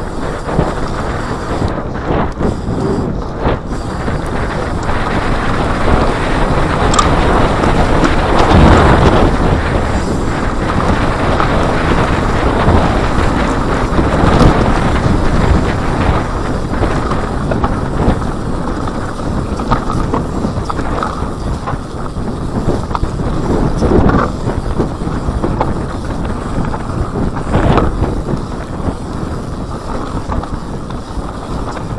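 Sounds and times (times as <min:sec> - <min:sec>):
bike knocking and rattling: 0:00.0 - 0:31.9
bike tyres rumbling on dirt: 0:00.0 - 0:31.9
wind rushing over microphone: 0:00.0 - 0:31.9.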